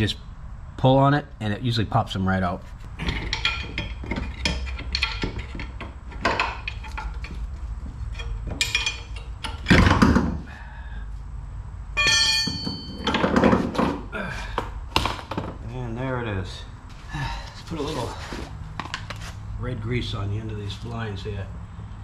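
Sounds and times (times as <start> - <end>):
metal clanks and scraping: 2.6 - 10.5, 12.0 - 14.1
heavy thunk: 9.6 - 10.5.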